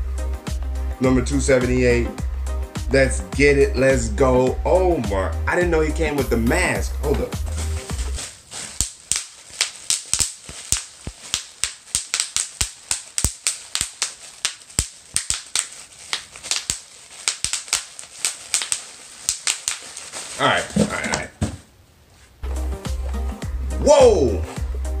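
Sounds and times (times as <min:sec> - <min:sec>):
bubble wrap popping: 0:07.1 - 0:21.3.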